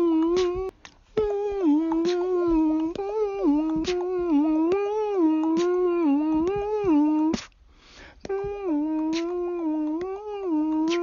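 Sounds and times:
person humming: 0.0s - 7.6s, 8.2s - 11.0s
soft intake of breath: 7.6s - 8.2s.

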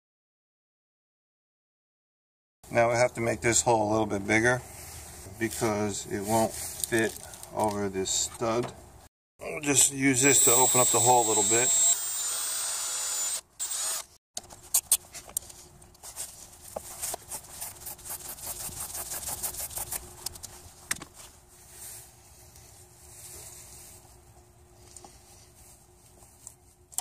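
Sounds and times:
cordless drill: 10.2s - 14.2s.

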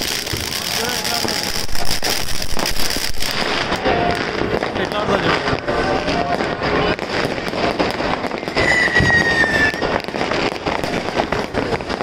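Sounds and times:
fireworks crackling bangs: 0.0s - 12.0s
high whistle dropping in pitch: 8.6s - 9.9s.

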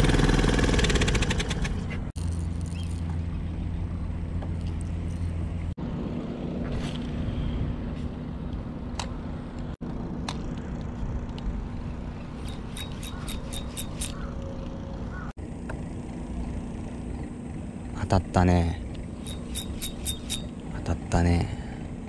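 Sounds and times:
outboard motor humming: 0.0s - 10.2s, 11.1s - 22.0s
fishing reel clicking: 12.4s - 14.4s, 19.2s - 20.5s.

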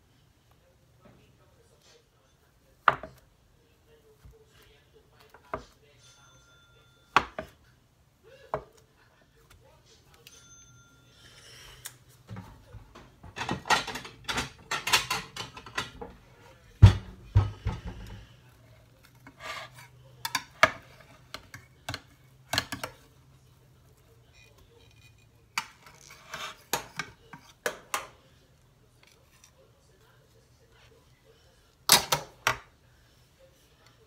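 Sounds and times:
metal spatula scraping glass dish: 19.3s - 20.0s.

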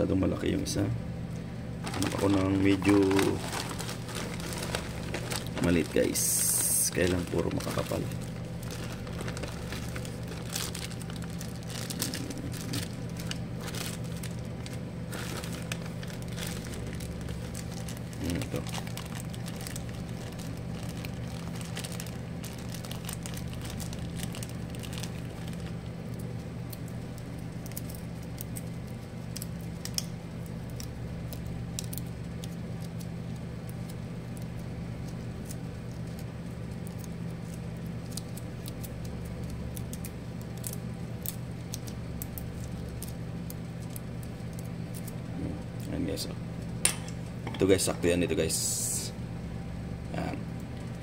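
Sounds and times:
low electrical hum: 0.0s - 51.0s
plastic bag crinkling: 1.8s - 30.0s
faint clicks of small parts: 27.6s - 45.2s.

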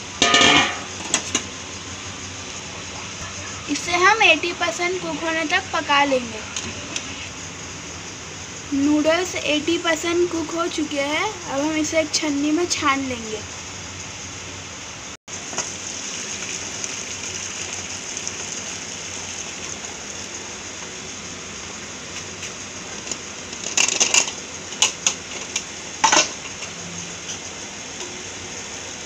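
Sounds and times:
steel pot and colander clanking: 0.2s - 1.5s, 22.9s - 27.4s
water draining through colander: 15.3s - 21.0s.

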